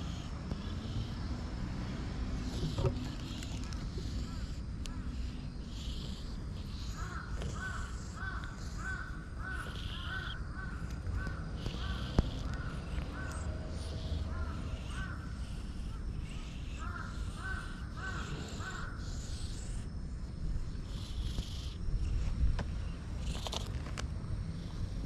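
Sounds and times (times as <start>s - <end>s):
crows cawing: 6.8s - 13.4s, 14.1s - 15.3s, 16.8s - 19.1s.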